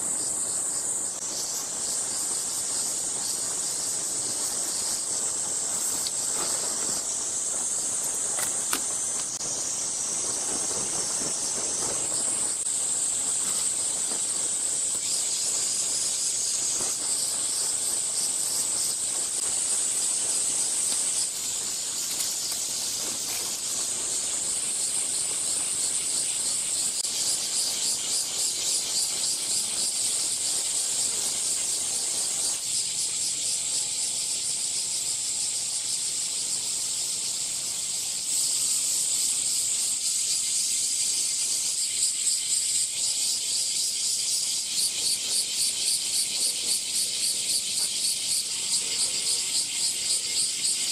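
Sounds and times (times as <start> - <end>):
cicadas chorus: 0.0 - 50.9
tent nylon rustling: 3.7 - 25.6.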